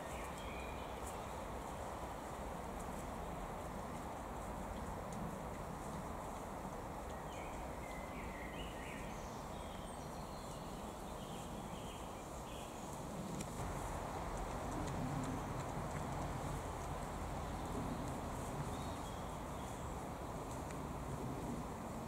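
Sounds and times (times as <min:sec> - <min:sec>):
low background noise: 0:00.0 - 0:22.0
piglet rooting in dry leaves: 0:00.0 - 0:22.0
leaves crackling: 0:10.5 - 0:22.0.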